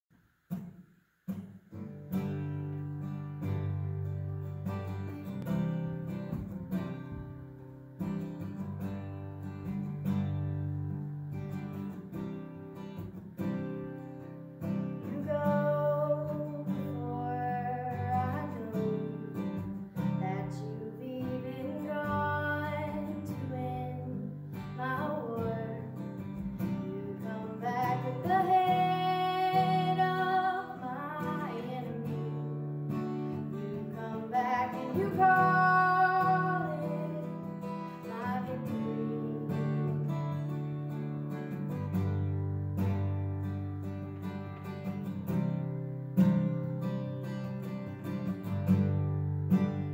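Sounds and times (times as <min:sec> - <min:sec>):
acoustic guitar strumming: 0:00.5 - 0:49.9
woman singing: 0:15.0 - 0:32.8, 0:33.4 - 0:40.2.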